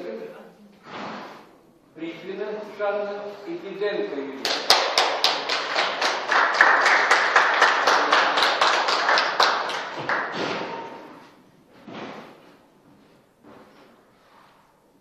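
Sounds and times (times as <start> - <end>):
people clapping: 4.4 - 11.2.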